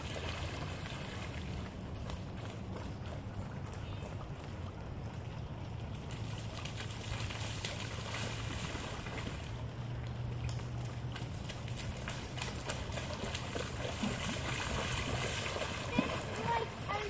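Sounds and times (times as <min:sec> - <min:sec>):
feet splashing in puddle: 0:00.0 - 0:17.0.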